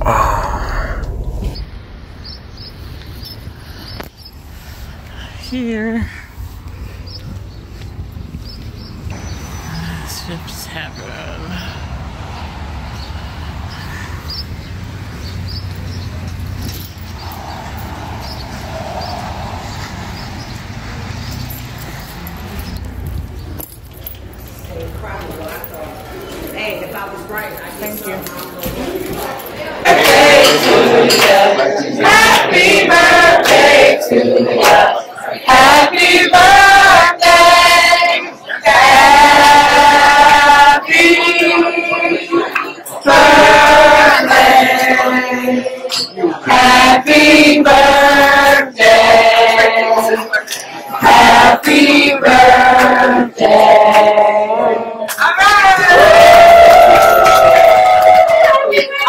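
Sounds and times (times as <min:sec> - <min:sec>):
steady low rumble: 0:00.0 - 0:21.0
footsteps on concrete: 0:06.4 - 0:09.3
group singing birthday song: 0:17.1 - 0:21.3, 0:28.6 - 0:59.0.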